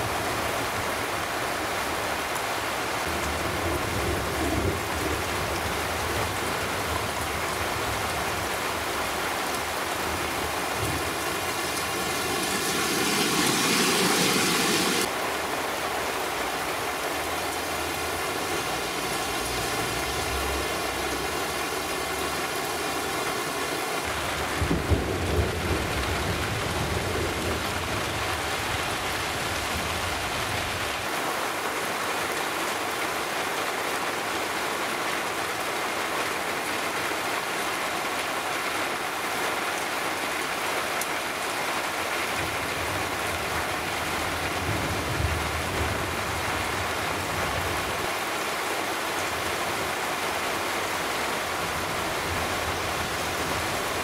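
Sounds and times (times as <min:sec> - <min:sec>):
heavy rain hissing: 0:00.0 - 0:32.0
thunder rumbling: 0:09.7 - 0:15.1.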